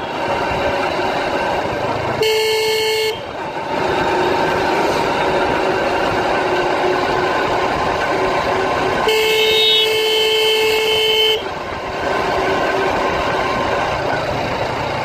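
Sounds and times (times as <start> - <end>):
motorbike engine and wind rush: 0.0 - 15.0
vehicle horn blast: 2.2 - 3.3, 9.0 - 11.5.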